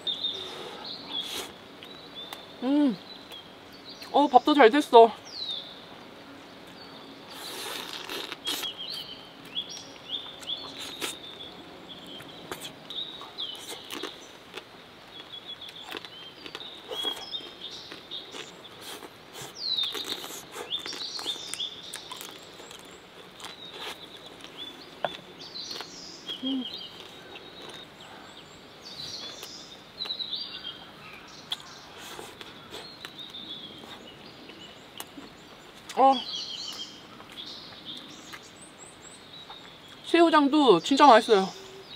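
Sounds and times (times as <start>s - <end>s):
small songbirds chirping: 0.0s - 41.9s
chewing: 7.3s - 9.0s, 9.8s - 11.3s, 12.1s - 28.4s, 31.0s - 36.0s.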